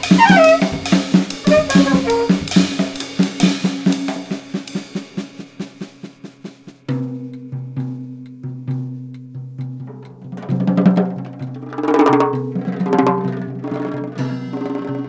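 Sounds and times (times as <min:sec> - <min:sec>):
free jazz music: 0:00.0 - 0:03.2.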